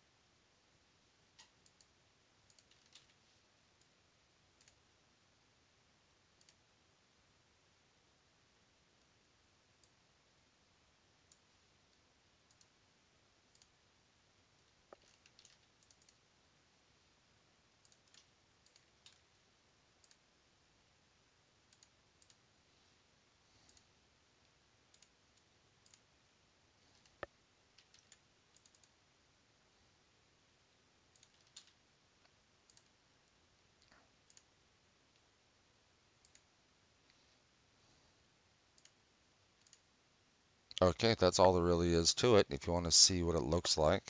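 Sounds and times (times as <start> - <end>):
mouse and keyboard clicks: 2.5 - 3.2, 14.9 - 16.2, 17.8 - 19.3, 26.9 - 29.0, 31.1 - 33.0.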